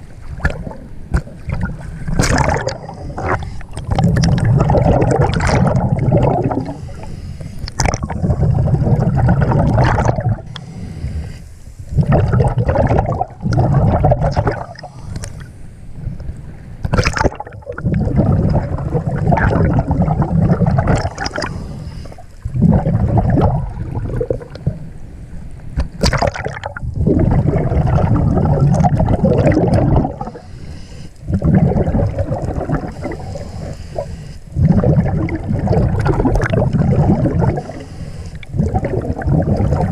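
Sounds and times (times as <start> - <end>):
underwater bubbling: 0.0 - 39.9.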